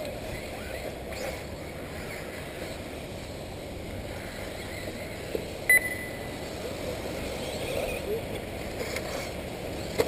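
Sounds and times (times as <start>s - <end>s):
electronic beep: 5.7s - 6.4s.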